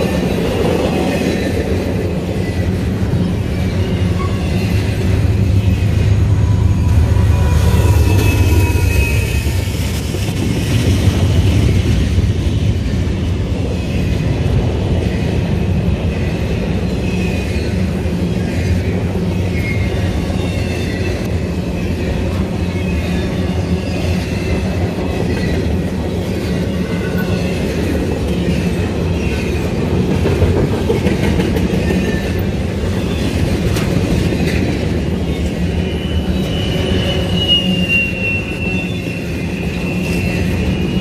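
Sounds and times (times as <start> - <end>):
train wheels rumbling on rail: 0.0 - 41.0
high-pitched wheel squeals: 2.4 - 9.9, 35.3 - 41.0.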